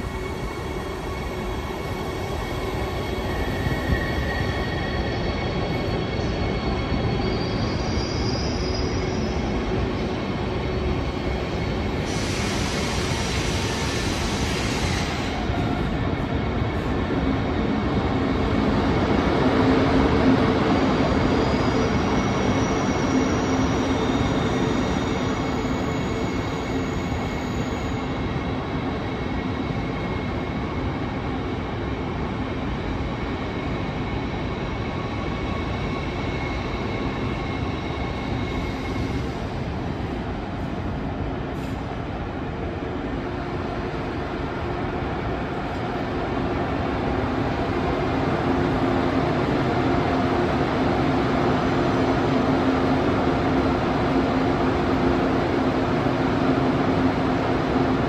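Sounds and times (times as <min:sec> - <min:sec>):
air hiss: 0:12.0 - 0:15.5.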